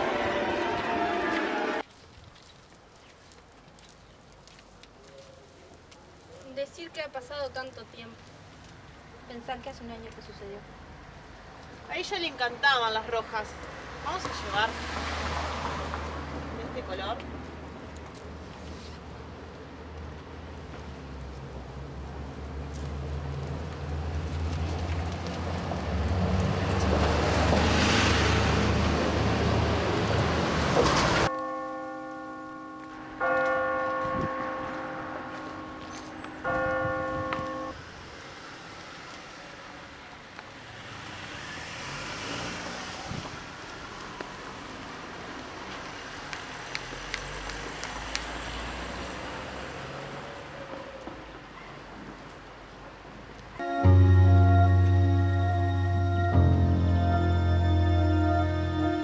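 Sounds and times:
bus engine passing by: 13.5s - 31.3s, 37.5s - 52.5s
church bell ringing: 31.2s - 37.8s.

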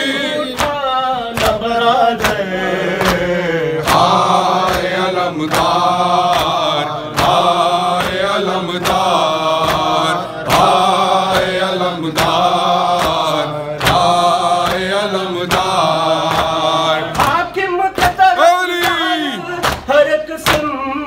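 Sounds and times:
voices chanting elegy: 0.0s - 19.9s
chest-beating slaps: 2.2s - 17.4s.

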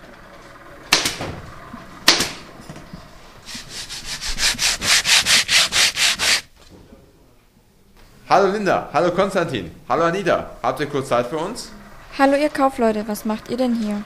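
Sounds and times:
hand rubbing on workbench: 3.4s - 6.5s.

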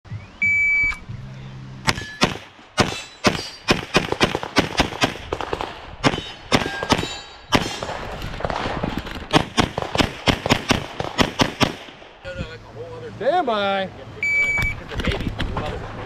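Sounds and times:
rapid pistol fire: 1.9s - 12.1s.

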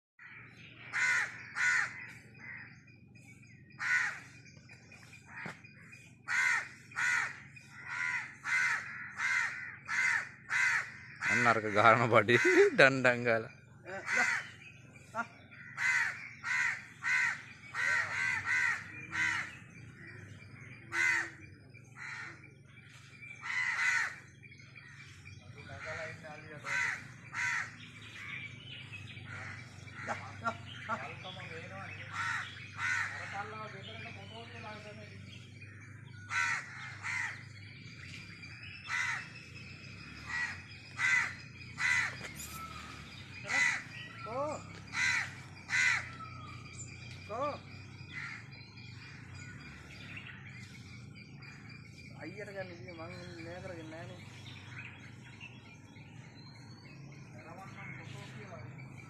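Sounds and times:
crows cawing: 0.2s - 2.9s, 3.7s - 4.5s, 5.2s - 13.2s, 13.8s - 52.1s
bird calling: 0.2s - 59.0s.

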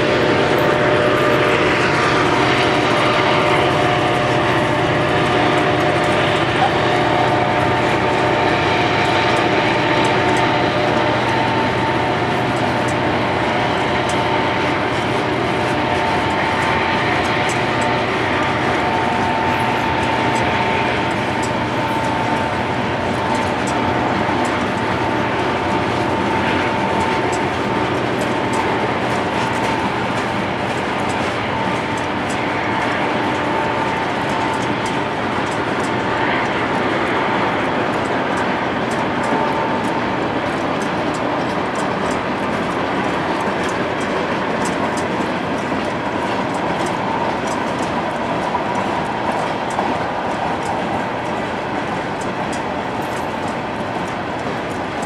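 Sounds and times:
rhythmic clicking of wheels: 0.0s - 55.0s
train wheels rumbling on rails: 0.0s - 55.0s.

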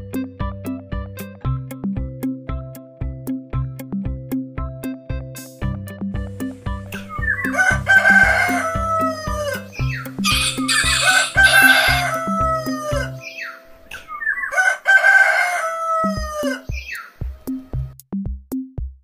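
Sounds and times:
background music with drum beat: 0.0s - 13.2s, 16.0s - 19.0s
rooster crowing: 7.1s - 17.1s.

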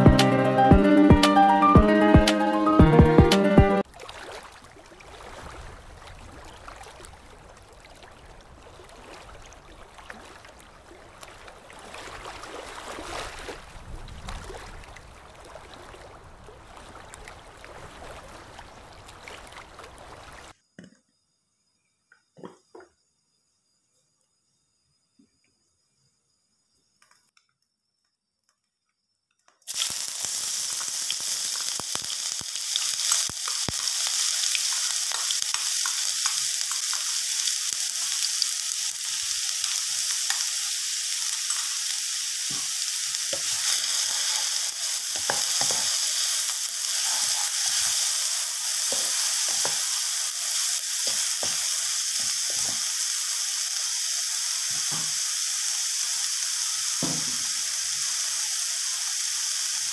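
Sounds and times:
food sizzling in hot oil: 29.7s - 59.9s.

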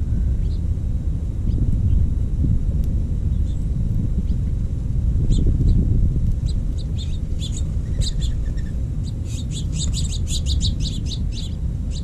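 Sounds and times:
steady low rumble: 0.0s - 12.0s
small birds chirping: 0.2s - 0.7s, 3.3s - 4.6s, 5.2s - 12.0s.

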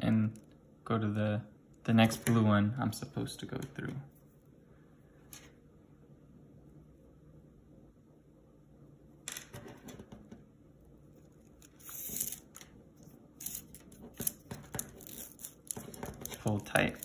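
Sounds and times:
cord rustling through beads: 11.2s - 17.0s
plastic beads clicking: 13.4s - 17.0s.

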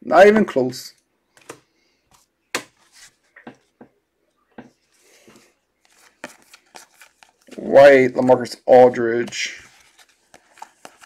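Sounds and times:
cards tapping and clicking: 5.3s - 7.6s, 9.2s - 11.0s.

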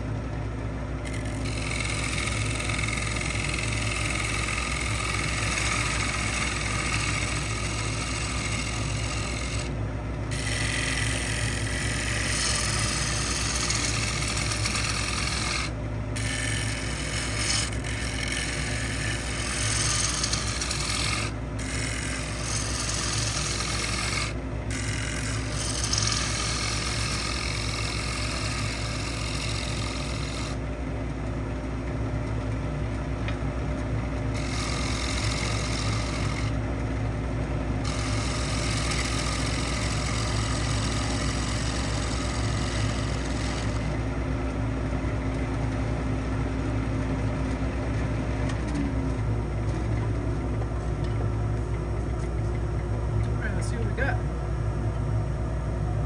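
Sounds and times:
wood lathe humming: 0.0s - 32.0s, 32.9s - 54.4s
tool rasping on wood: 1.0s - 30.6s, 34.3s - 36.6s, 37.8s - 44.0s.

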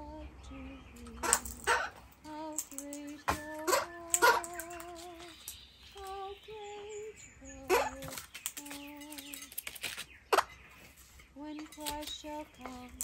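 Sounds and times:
woman humming: 0.0s - 5.3s.

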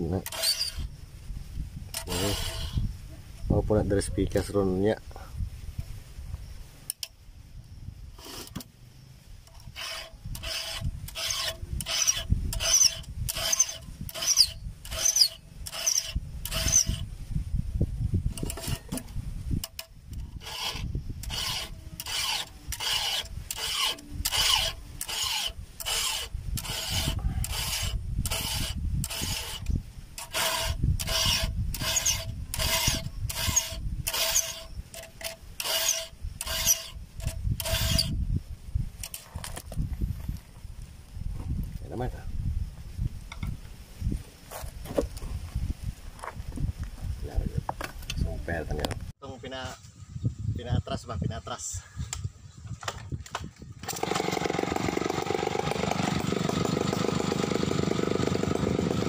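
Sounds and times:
file rasping on chainsaw chain: 0.2s - 0.9s, 2.0s - 2.8s, 9.5s - 17.1s, 20.4s - 38.2s, 53.9s - 59.0s.

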